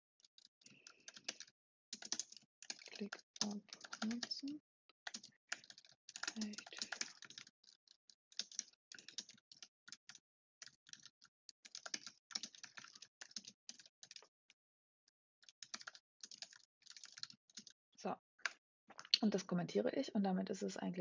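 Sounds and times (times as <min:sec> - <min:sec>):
faint keyboard typing: 0:00.2 - 0:14.3, 0:15.4 - 0:17.8.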